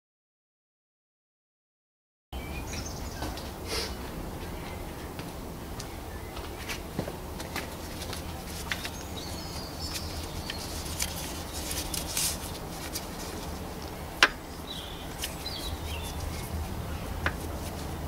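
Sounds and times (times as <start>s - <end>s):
cloth rag rustling and scuffing: 6.7s - 14.0s.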